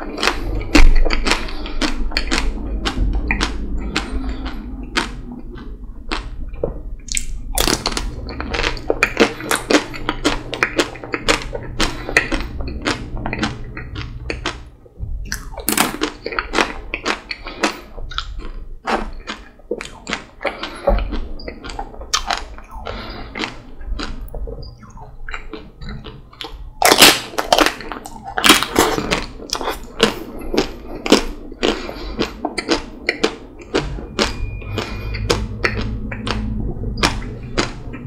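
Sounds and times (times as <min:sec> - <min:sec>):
biting and chewing: 0:00.0 - 0:38.0
chocolate shell cracking and crunching: 0:26.8 - 0:30.0.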